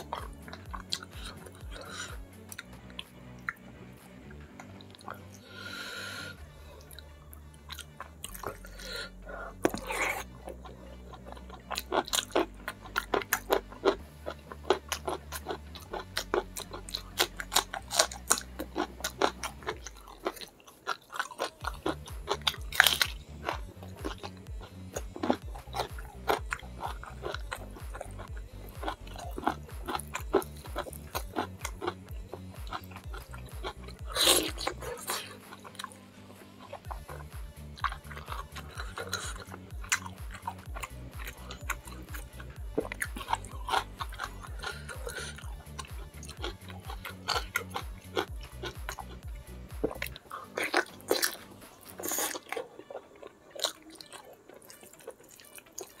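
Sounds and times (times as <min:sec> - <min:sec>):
music with low beat: 0:00.0 - 0:20.6, 0:21.2 - 0:53.4
chewing and crunching food: 0:00.0 - 0:56.0.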